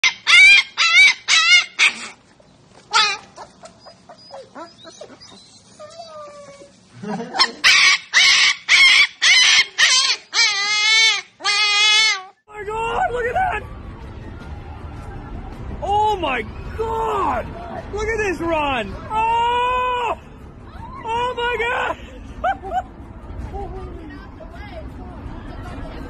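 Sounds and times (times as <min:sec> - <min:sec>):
puppy howling: 0:00.0 - 0:02.2, 0:02.9 - 0:06.8, 0:07.4 - 0:13.7
puppy whining: 0:00.0 - 0:12.4
puppy yelping: 0:00.0 - 0:12.4.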